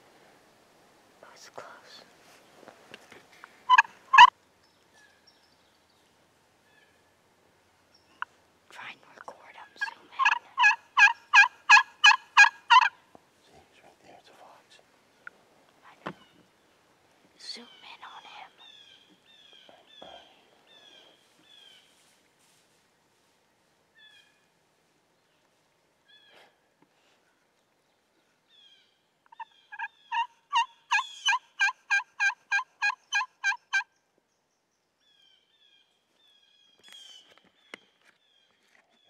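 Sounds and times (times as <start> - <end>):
songbird chirps: 1.2 - 31.6, 32.2 - 39.0
turkey yelps: 3.7 - 4.3, 10.2 - 13.0, 29.3 - 33.9.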